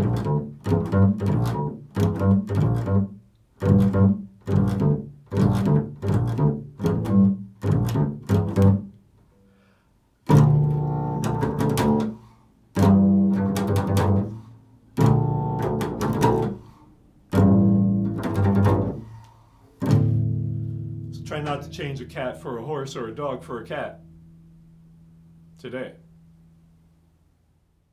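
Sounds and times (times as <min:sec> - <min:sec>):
plucked double bass: 0:00.0 - 0:09.0, 0:10.2 - 0:26.9.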